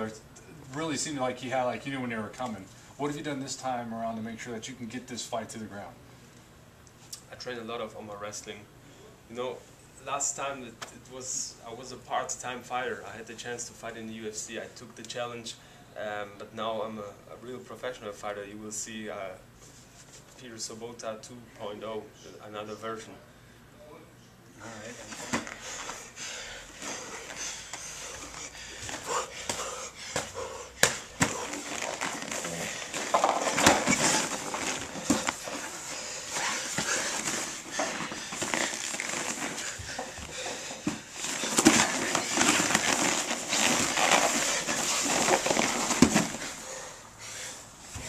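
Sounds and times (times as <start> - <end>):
hard breathing: 24.8 - 48.0
bodies scuffing and slapping on mat: 27.7 - 46.6.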